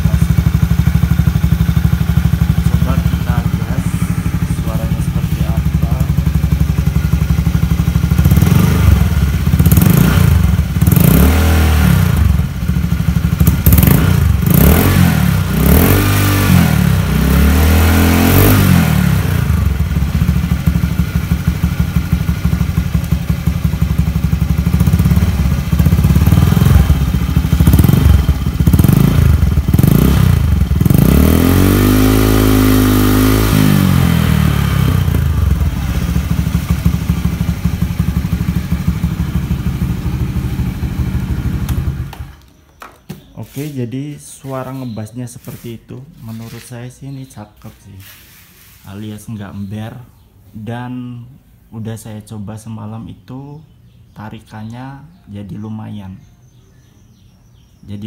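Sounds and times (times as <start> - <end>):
scooter engine revving: 0.0 - 43.7.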